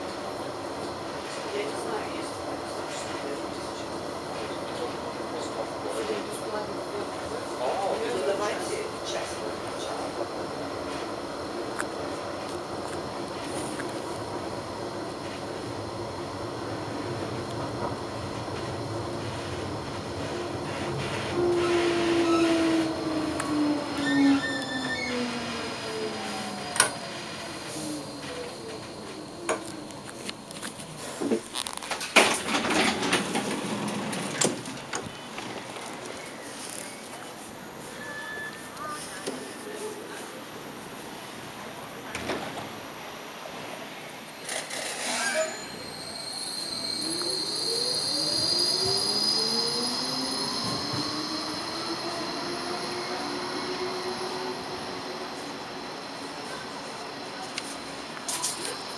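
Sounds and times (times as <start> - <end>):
tram wheel whine: 0.0 - 39.8, 40.4 - 58.9
tram knocks and rattling clatter: 8.0 - 25.7, 26.6 - 36.1.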